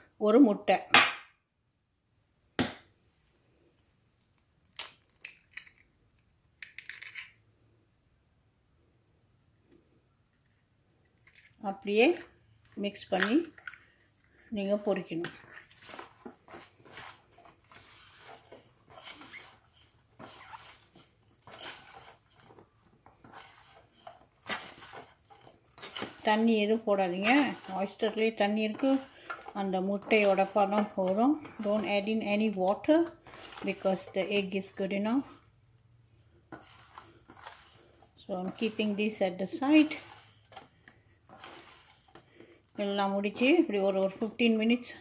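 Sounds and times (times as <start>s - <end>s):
small clicks of egg opening: 4.2s - 7.4s
hand mixing wet food in bowl: 11.2s - 45.0s.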